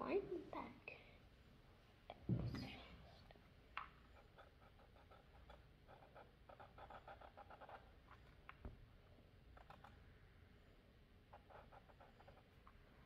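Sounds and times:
soft knock: 2.3s - 2.8s
marker scratching on paper: 4.0s - 8.5s, 9.4s - 10.0s, 11.3s - 12.8s.

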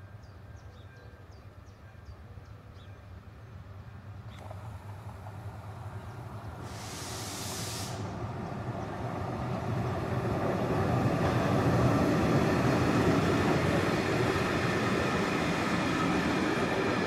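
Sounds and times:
electric locomotive passing: 3.1s - 17.0s
wheels rumbling on rails: 3.8s - 7.2s, 7.8s - 17.0s.

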